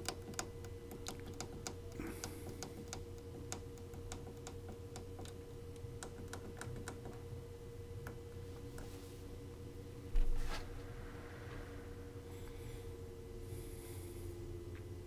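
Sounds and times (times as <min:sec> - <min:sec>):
light irregular clicking: 0:00.0 - 0:07.2
computer electrical hum: 0:00.0 - 0:15.0.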